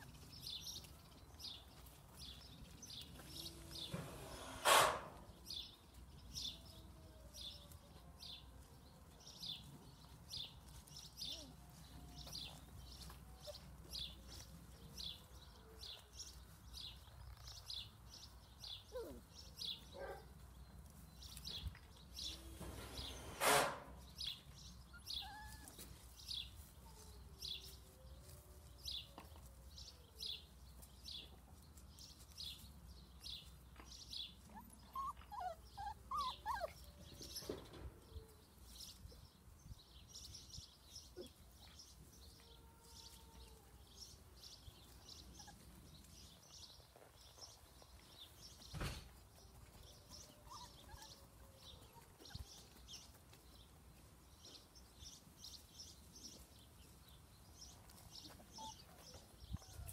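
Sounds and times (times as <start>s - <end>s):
loud short rustle or bump: 3.9s - 5.2s, 22.6s - 24.0s, 48.7s - 49.2s
puppies whimpering and squeaking: 18.9s - 19.3s, 24.8s - 27.2s, 34.3s - 38.3s, 44.9s - 46.2s, 49.5s - 53.2s, 57.8s - 59.9s
bird chirping: 32.0s - 42.0s.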